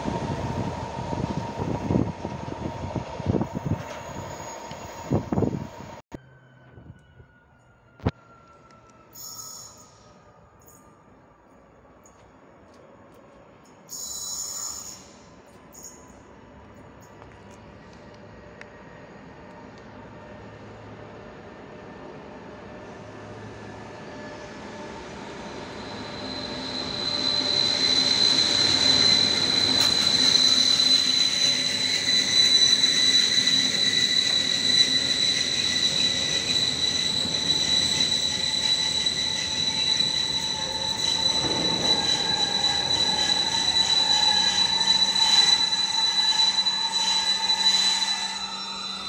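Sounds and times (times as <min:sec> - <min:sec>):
train wheels squealing: 0:00.0 - 0:12.9, 0:13.6 - 0:17.9, 0:22.6 - 0:49.0.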